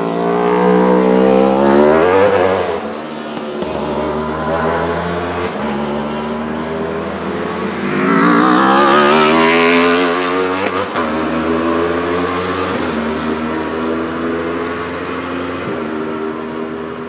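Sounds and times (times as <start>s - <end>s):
racing car engine passing by: 0.0s - 15.5s.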